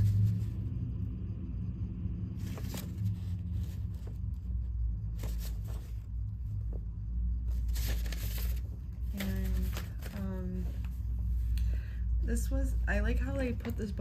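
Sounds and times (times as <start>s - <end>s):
stiff paper rustling: 2.4s - 6.2s, 7.4s - 11.5s.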